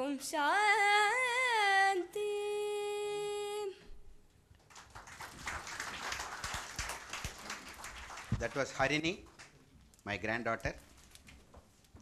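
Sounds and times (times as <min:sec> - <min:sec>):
woman singing unaccompanied: 0:00.0 - 0:03.9
faint clapping: 0:04.6 - 0:09.6.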